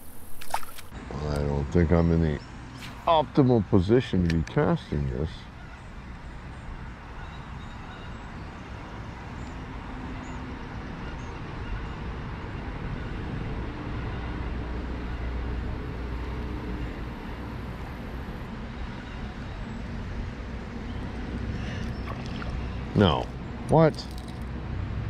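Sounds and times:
road traffic rumble: 0:00.0 - 0:25.0
vehicle engine hum: 0:08.6 - 0:25.0.

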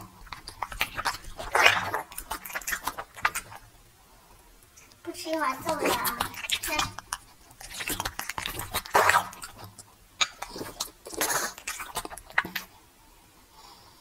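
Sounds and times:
dog chewing with sharp clicks: 0:04.6 - 0:12.7.

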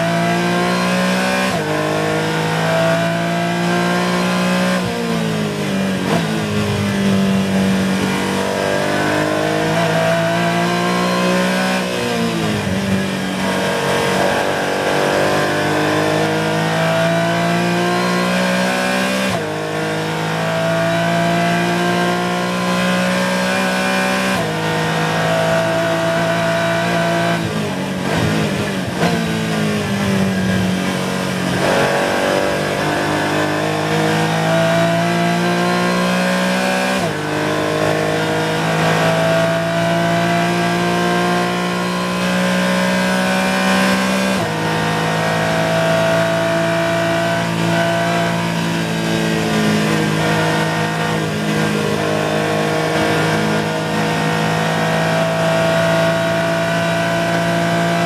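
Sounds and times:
race car engine at high revs: 0:00.0 - 0:58.0.

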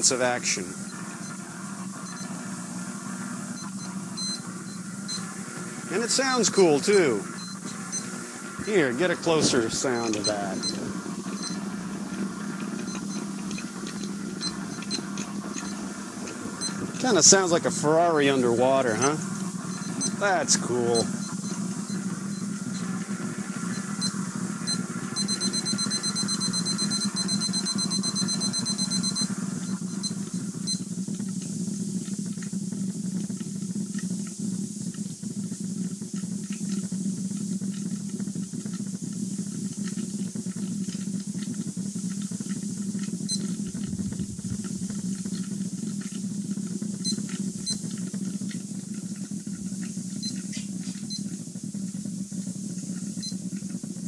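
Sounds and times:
rapid high electronic beeping: 0:00.0 - 0:02.4, 0:03.5 - 0:30.9
electrical buzz with crackling: 0:00.0 - 0:54.0.

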